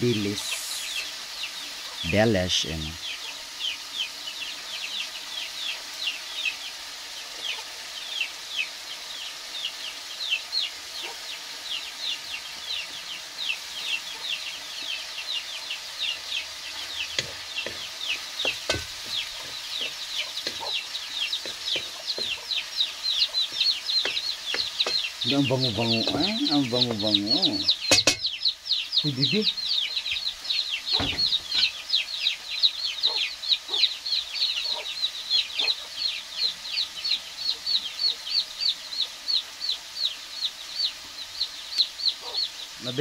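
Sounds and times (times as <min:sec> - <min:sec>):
chicks peeping: 0:00.1 - 0:43.0
wooden spatula knocking on wok: 0:17.0 - 0:22.6, 0:23.4 - 0:25.2, 0:27.8 - 0:28.3, 0:31.0 - 0:31.7.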